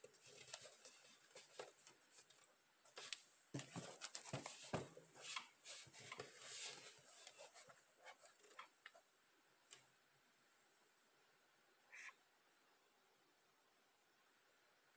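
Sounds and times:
sneaker handling taps and rustles: 0.3s - 8.4s.

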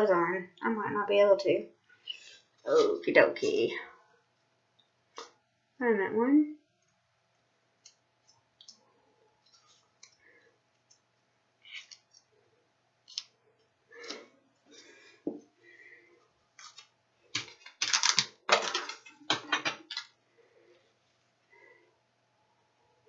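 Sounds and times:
gloved hands handling supplies: 16.5s - 20.2s.

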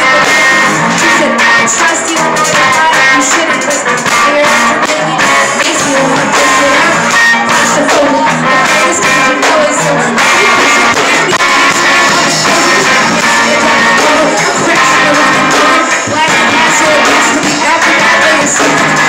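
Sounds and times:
loud backing music: 0.0s - 19.0s
person rapping into a microphone: 0.0s - 19.0s.

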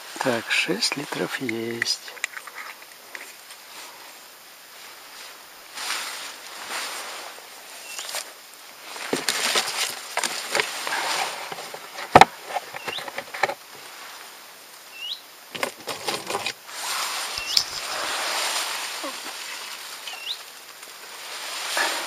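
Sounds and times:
water pouring and splashing: 15.5s - 22.0s.

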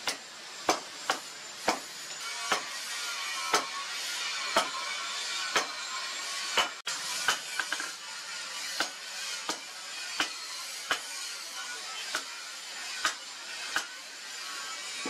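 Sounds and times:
hammer striking metal on anvil: 0.0s - 2.8s, 3.4s - 3.8s, 4.5s - 4.9s, 5.5s - 5.8s, 6.5s - 7.9s, 8.7s - 11.2s, 12.1s - 12.4s, 13.0s - 14.0s.

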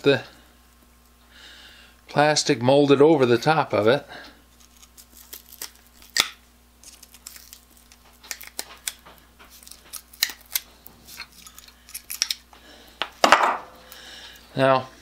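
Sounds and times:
plastic cracking under pliers: 4.6s - 12.4s.

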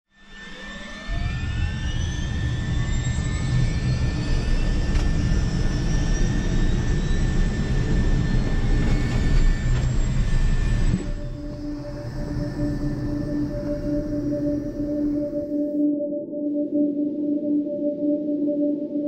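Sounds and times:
turbine whine spooling up: 0.1s - 17.8s
heavy low rumble: 1.3s - 15.6s.

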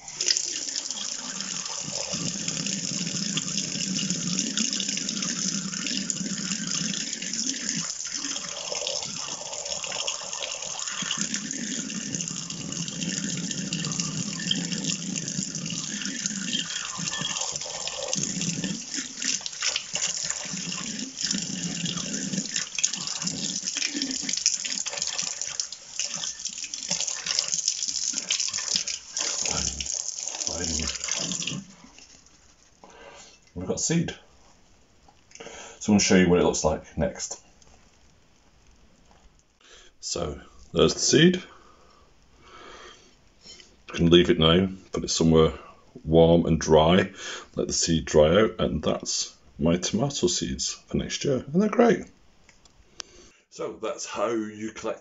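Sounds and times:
tap water running into sink: 0.0s - 32.4s.

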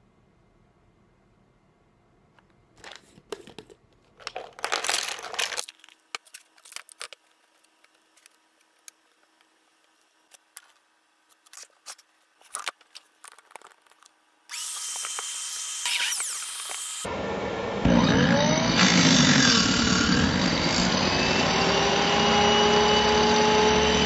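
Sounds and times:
wooden biscuits rattling from jar: 2.8s - 7.3s
power tool motor whining: 14.5s - 24.0s.

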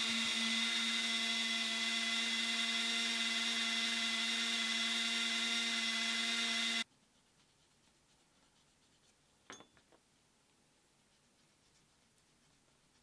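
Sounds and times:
rotary tool whining: 0.0s - 6.8s.

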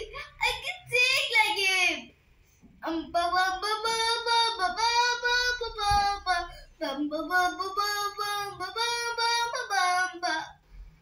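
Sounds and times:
girl singing: 2.8s - 10.6s.

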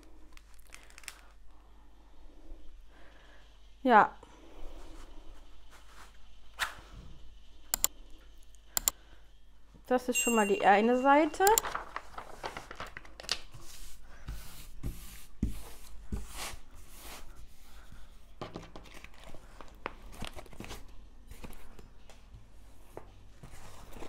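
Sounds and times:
canvas and paper crinkling: 0.4s - 1.4s, 11.6s - 13.7s.

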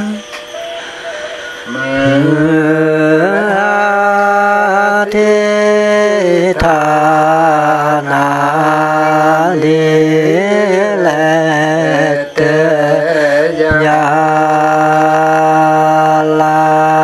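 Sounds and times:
man chanting in long held notes: 0.0s - 0.3s, 1.6s - 17.0s.

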